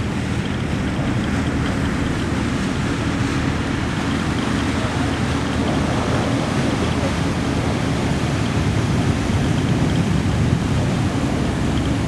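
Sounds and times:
jet airliner engines rumbling: 0.0 - 12.0.

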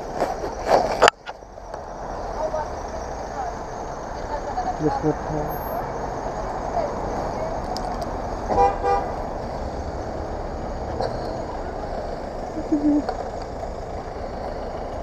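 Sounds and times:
engine and street traffic rumble: 0.0 - 15.0
vehicle horn tooting: 8.5 - 9.2.

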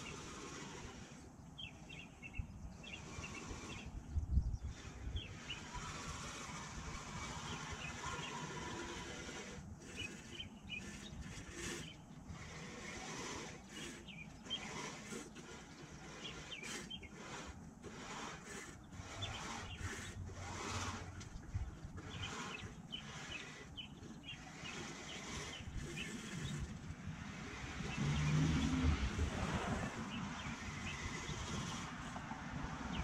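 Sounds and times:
small birds chirping: 0.0 - 26.8, 29.9 - 31.9
passing vehicle rumble: 27.5 - 31.2.

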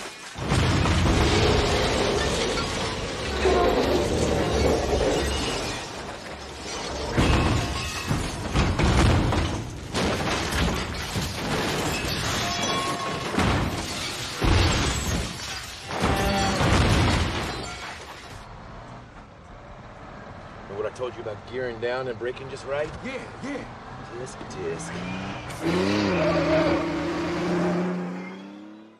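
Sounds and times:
crunching metal crashes: 0.0 - 18.4
glass shattering: 0.0 - 18.4
debris clattering: 0.0 - 18.5.

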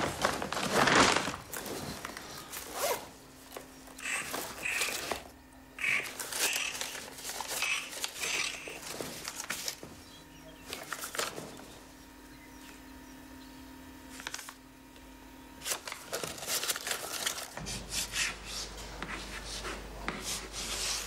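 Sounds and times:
faint steady hum: 0.0 - 21.0
rustling and scraping in purse: 5.8 - 9.9, 15.6 - 21.0.

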